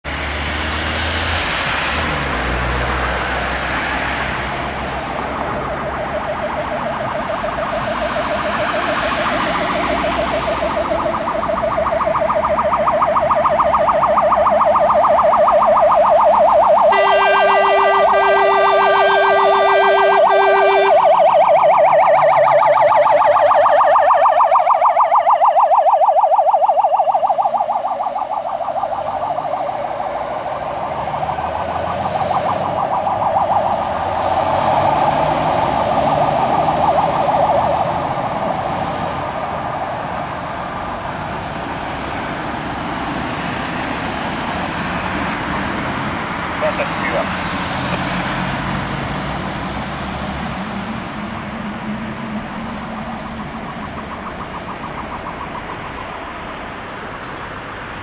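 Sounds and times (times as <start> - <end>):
engine and traffic noise: 0.0 - 58.0
fire engine siren warbling: 0.0 - 58.0
truck horn blasts: 16.9 - 21.0.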